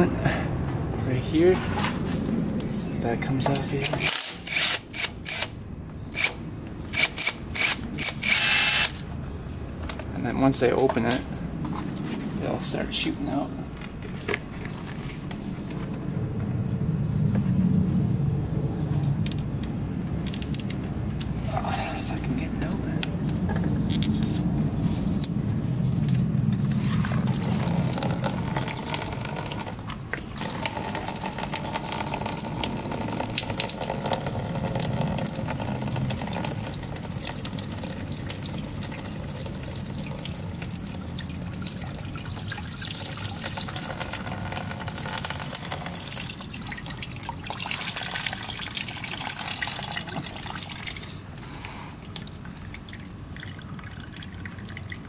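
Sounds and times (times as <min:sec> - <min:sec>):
coolant pouring in a stream: 0:27.0 - 0:55.0.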